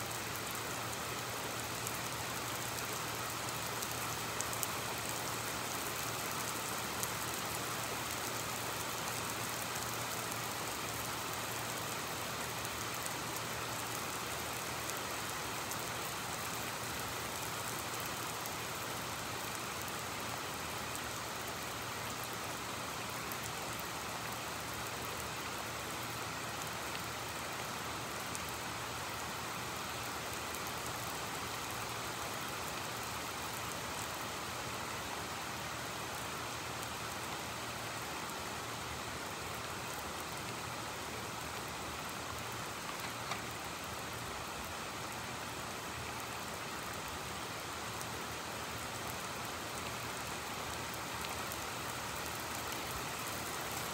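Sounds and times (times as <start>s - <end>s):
heavy rain falling: 0.0s - 53.9s
small tick: 42.9s - 43.5s.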